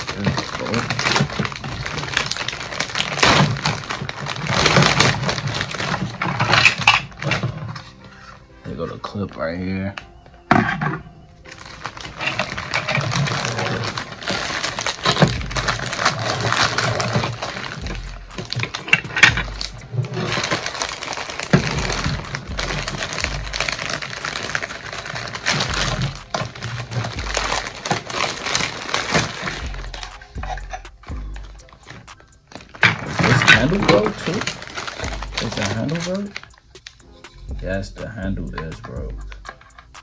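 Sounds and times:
plastic bags crinkling: 0:00.0 - 0:08.4, 0:11.4 - 0:37.0
music with bass beat: 0:14.0 - 0:40.0.

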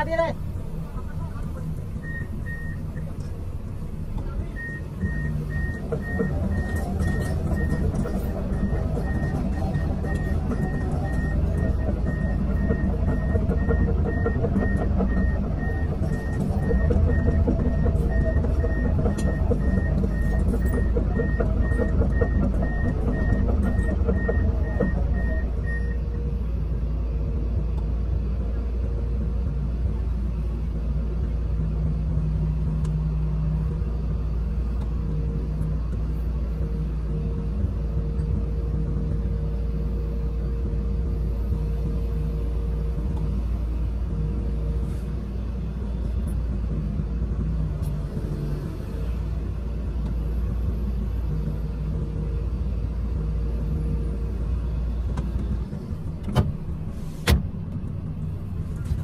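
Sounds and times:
excavator engine and hydraulics: 0:00.0 - 0:59.0
beeping alarm: 0:04.5 - 0:26.2.

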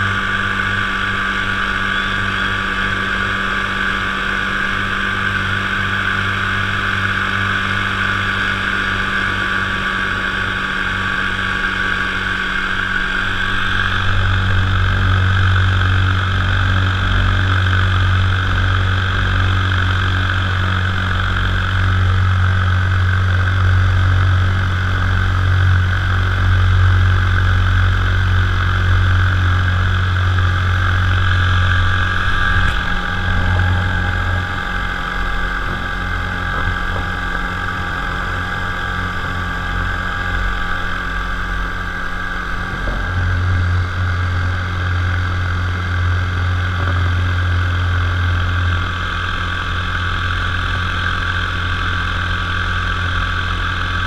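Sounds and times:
paramotor engine droning: 0:00.0 - 0:54.0.

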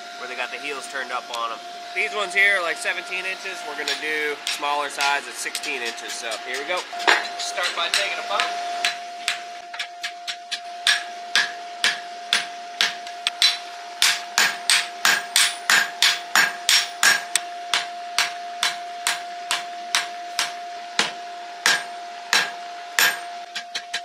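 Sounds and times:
steady high hum: 0:00.0 - 0:24.0
hammer striking steel on anvil: 0:03.8 - 0:24.0.

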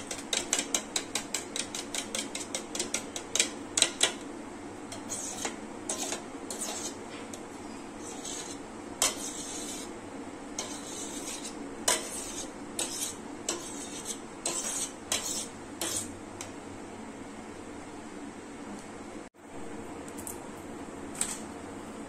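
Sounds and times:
spoon scraping steel bowl: 0:00.0 - 0:04.2, 0:04.9 - 0:07.4, 0:08.0 - 0:09.9, 0:10.6 - 0:16.1.

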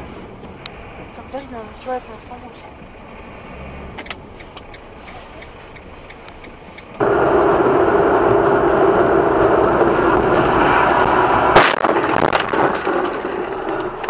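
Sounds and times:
car road and engine noise: 0:00.0 - 0:14.0
low hum: 0:00.0 - 0:14.0
faint ticking: 0:02.6 - 0:07.0.

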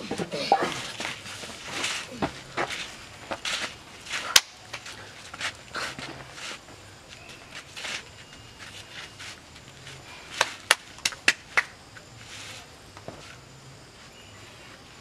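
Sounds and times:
soft scuffing: 0:00.5 - 0:10.6
sharp smacks: 0:04.3 - 0:04.6.

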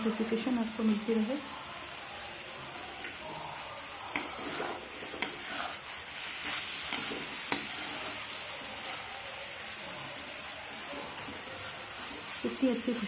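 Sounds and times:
greens sizzling in a pan: 0:00.0 - 0:13.0
metal spatula scraping a pan: 0:03.0 - 0:09.1.

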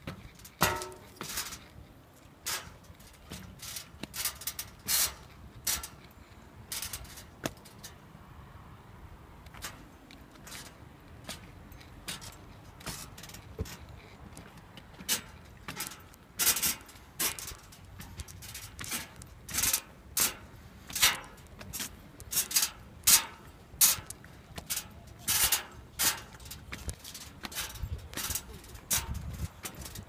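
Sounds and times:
footsteps on metal stairs: 0:00.0 - 0:08.0, 0:09.4 - 0:30.0.

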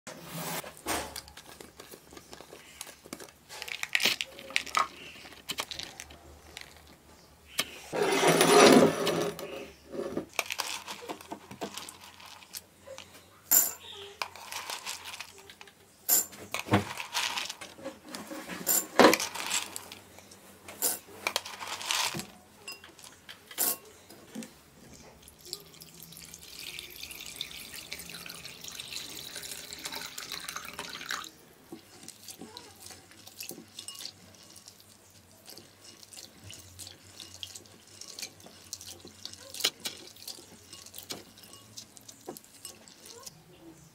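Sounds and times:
metal spoon clinking against glass: 0:13.5 - 0:14.2, 0:22.6 - 0:23.9, 0:33.4 - 0:34.8, 0:35.5 - 0:43.3
water pouring into bowl: 0:25.2 - 0:31.4, 0:32.0 - 0:43.3.

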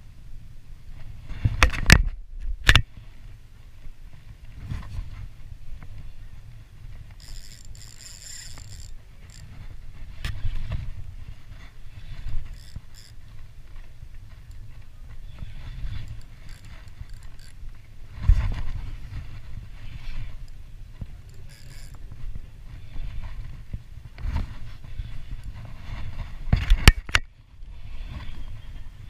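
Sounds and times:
reel whirring: 0:05.2 - 0:28.6
fishing reel clicks and scrapes: 0:07.0 - 0:23.6, 0:24.5 - 0:27.2.

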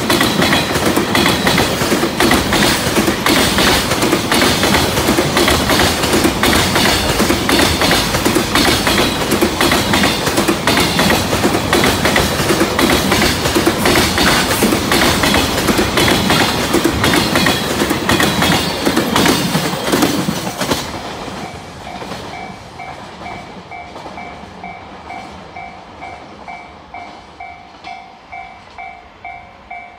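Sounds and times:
wheels clattering over rail joints: 0:00.0 - 0:22.4
freight train wagons rumbling: 0:00.0 - 0:29.9.

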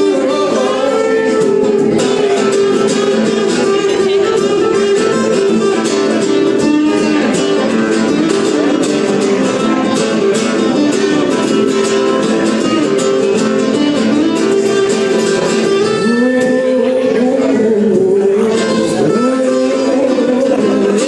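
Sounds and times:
two acoustic guitars playing: 0:00.0 - 0:21.0.

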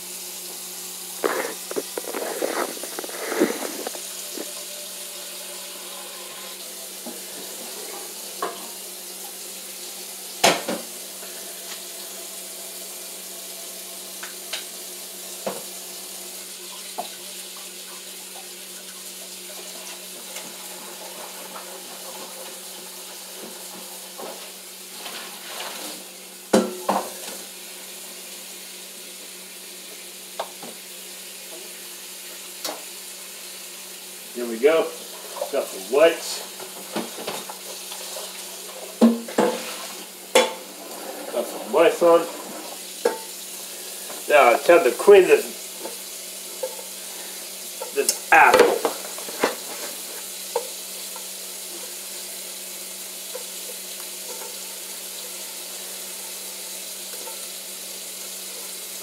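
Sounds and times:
tap running into a sink: 0:30.4 - 0:30.8, 0:39.0 - 0:40.6.

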